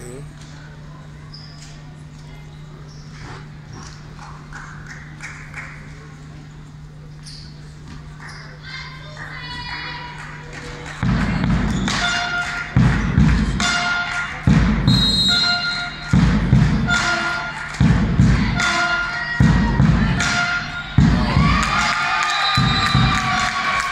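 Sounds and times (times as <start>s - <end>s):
crowd noise: 0.0s - 23.9s
big drum booming: 14.5s - 15.3s, 19.4s - 20.4s, 21.0s - 21.7s.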